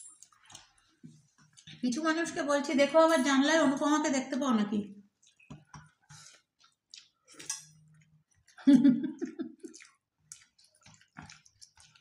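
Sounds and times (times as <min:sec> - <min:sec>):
chewing: 0:00.1 - 0:01.9, 0:05.1 - 0:08.7, 0:09.5 - 0:12.0
person humming or laughing: 0:08.6 - 0:09.7.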